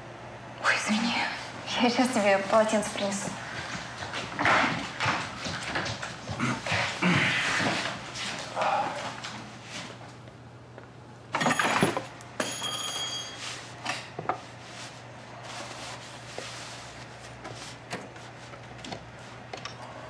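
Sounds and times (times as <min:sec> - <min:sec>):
clothes rustling: 0:13.3 - 0:19.4.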